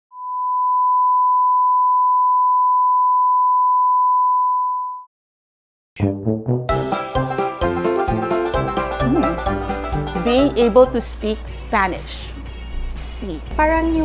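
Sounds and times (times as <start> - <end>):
music: 6.0 - 14.0.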